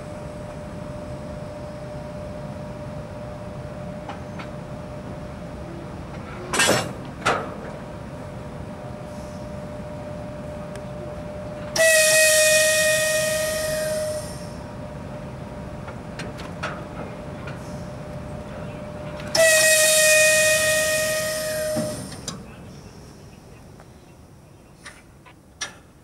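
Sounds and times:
air hose whistling hiss: 0:11.8 - 0:14.5, 0:19.4 - 0:22.3.

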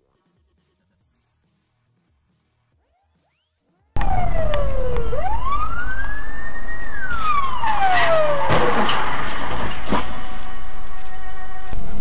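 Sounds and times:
siren wailing: 0:04.0 - 0:09.4, 0:10.0 - 0:12.0
road noise: 0:04.0 - 0:12.0.

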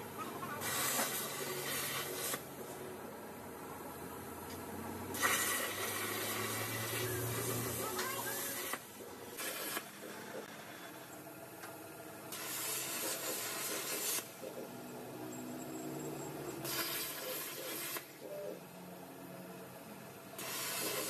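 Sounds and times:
cutting torch hissing: 0:00.4 - 0:02.6, 0:05.1 - 0:11.0, 0:12.3 - 0:14.5, 0:16.5 - 0:18.2, 0:20.4 - 0:21.0.

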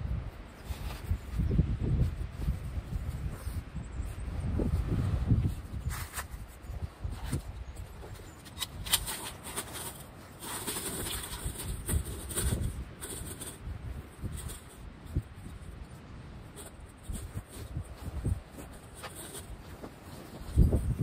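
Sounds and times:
rustling: 0:00.1 - 0:21.0
metal windscreen knocks and clicks: 0:05.8 - 0:15.7, 0:16.4 - 0:21.0.

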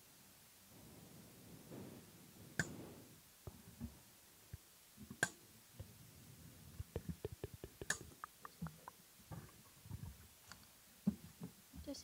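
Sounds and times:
light clicks and taps: 0:06.8 - 0:11.9.

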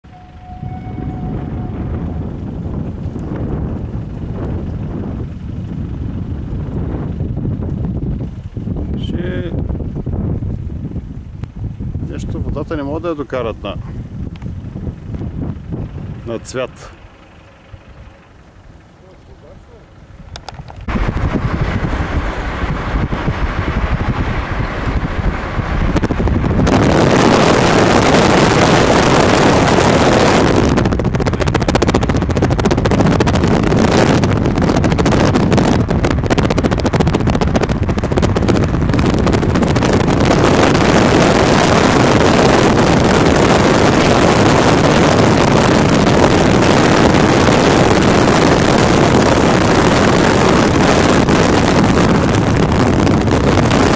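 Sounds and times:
moving vehicle noise: 0:00.0 - 0:53.9
wind on microphone: 0:00.0 - 0:53.9.

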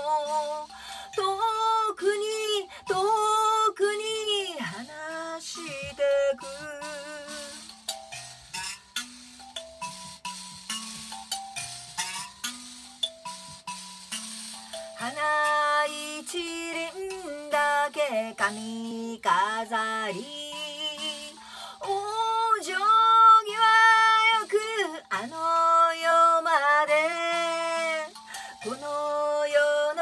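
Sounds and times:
woman singing: 0:00.0 - 0:07.8, 0:15.0 - 0:30.0
kalimba notes: 0:00.0 - 0:30.0.

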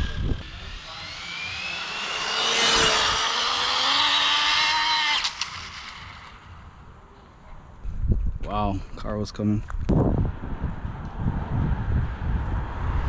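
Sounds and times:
high-pitched electric motor whine: 0:00.0 - 0:06.8.

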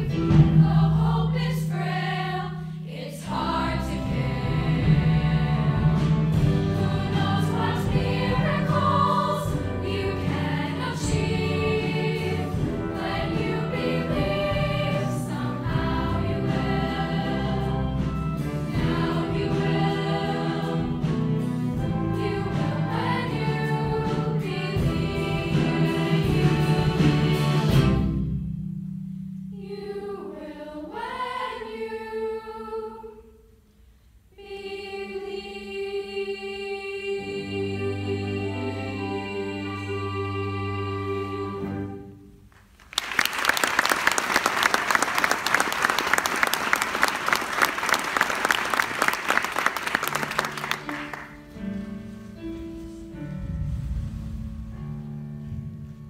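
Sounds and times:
choir singing: 0:00.0 - 0:28.2, 0:29.5 - 0:33.4, 0:34.3 - 0:42.3
musical accompaniment with bass line: 0:03.3 - 0:29.6.

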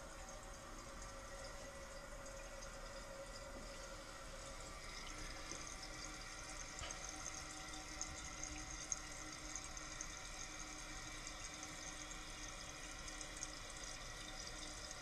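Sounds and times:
toilet tank refilling: 0:00.0 - 0:15.0.

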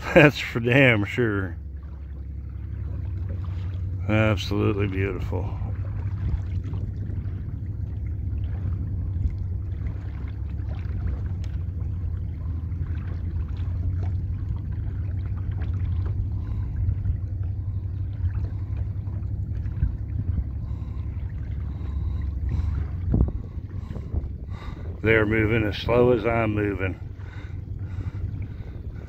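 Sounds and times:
faint steady hum: 0:00.0 - 0:29.0
wind rumbling on microphone: 0:00.0 - 0:29.0.

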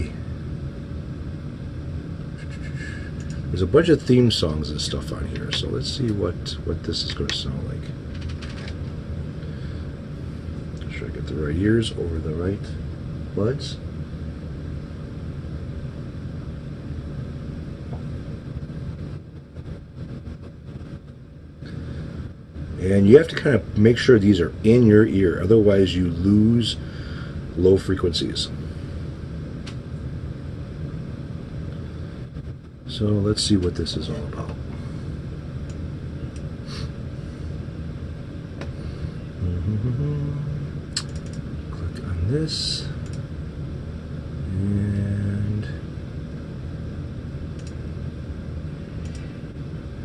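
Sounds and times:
exhaust fan running: 0:00.0 - 0:50.0
low background rumble: 0:00.0 - 0:50.0
low hum rising in pitch: 0:38.1 - 0:47.7
faint clicks: 0:40.9 - 0:41.4, 0:43.0 - 0:43.2, 0:49.0 - 0:49.3.

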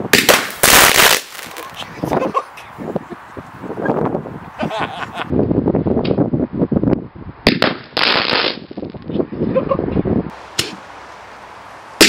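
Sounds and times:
firework crackling and popping: 0:00.0 - 0:01.8, 0:07.5 - 0:09.1.

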